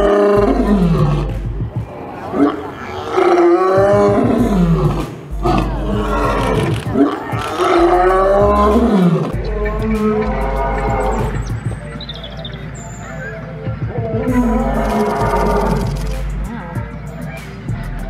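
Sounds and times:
lion roaring: 0:00.0 - 0:11.6, 0:13.9 - 0:16.8.

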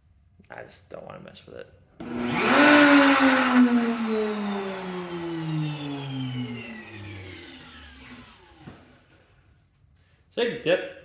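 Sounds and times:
wood router whine: 0:02.0 - 0:09.3.

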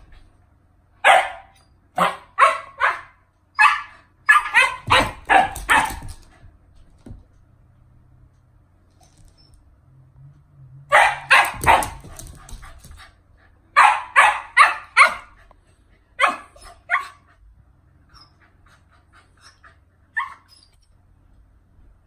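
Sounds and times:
puppy barking: 0:01.0 - 0:06.2, 0:10.9 - 0:12.5, 0:13.7 - 0:15.4, 0:16.2 - 0:17.3, 0:20.1 - 0:20.5
puppy yip: 0:01.1 - 0:06.0, 0:20.2 - 0:20.8.

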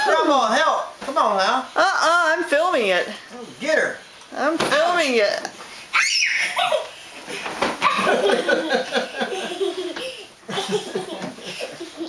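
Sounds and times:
people laughing: 0:07.9 - 0:12.0.

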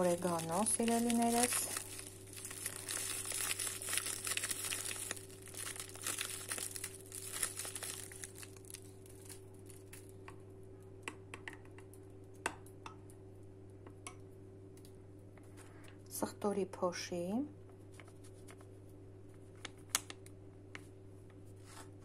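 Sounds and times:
dried herbs shaken into bowl: 0:00.0 - 0:08.5
spice packet crinkling: 0:00.0 - 0:10.2.

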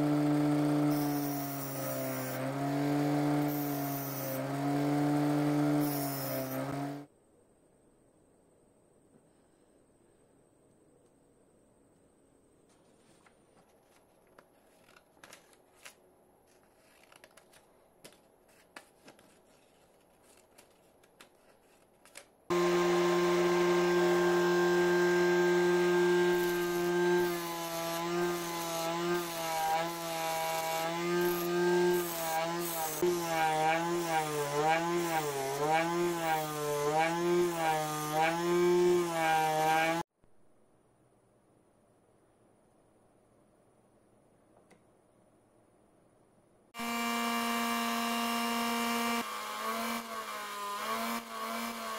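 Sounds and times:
grinder motor whine: 0:00.0 - 0:07.1, 0:22.5 - 0:40.0, 0:46.8 - 0:51.9.

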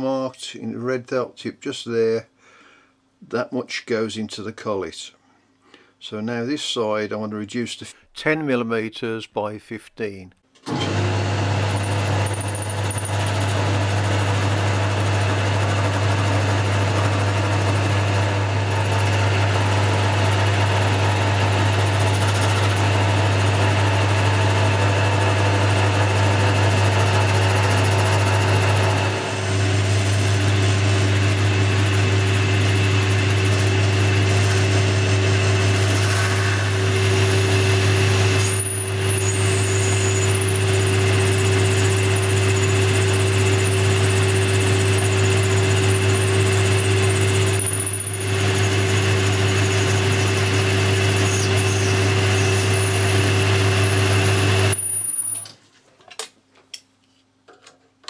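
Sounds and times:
lathe cutting metal: 0:11.6 - 0:55.2.

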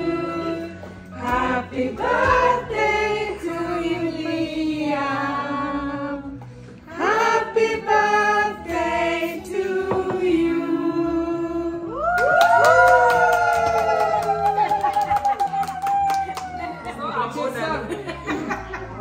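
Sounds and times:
group singing birthday song: 0:00.0 - 0:12.0.

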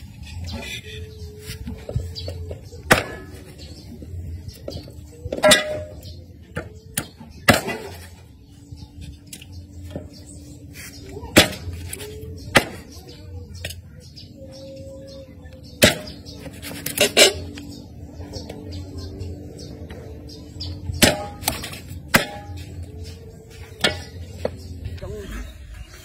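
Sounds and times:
cleaver chopping on wooden block: 0:21.0 - 0:22.5.

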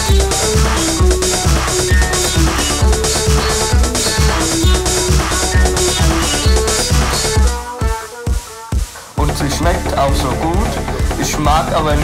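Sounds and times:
held synth notes: 0:00.0 - 0:12.0
kick drum beat: 0:00.0 - 0:12.0.

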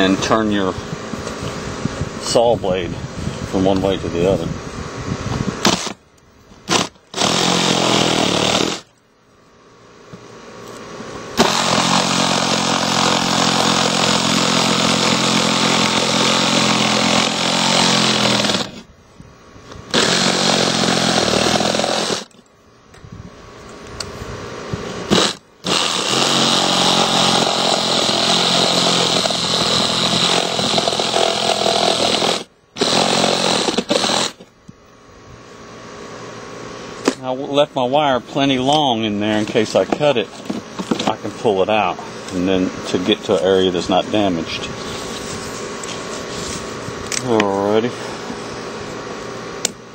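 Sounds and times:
reciprocating saw cutting siding: 0:05.5 - 0:06.0, 0:06.6 - 0:09.0, 0:10.1 - 0:18.9, 0:19.7 - 0:22.4, 0:24.6 - 0:34.6.

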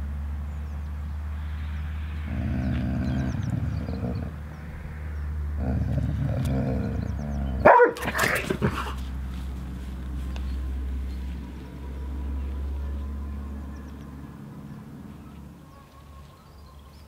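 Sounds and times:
dog barking: 0:07.6 - 0:09.0.

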